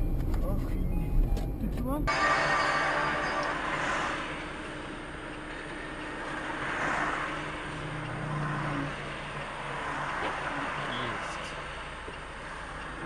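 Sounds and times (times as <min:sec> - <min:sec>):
car engine hum: 0:00.0 - 0:13.0
tyre noise on wet road: 0:03.8 - 0:13.0.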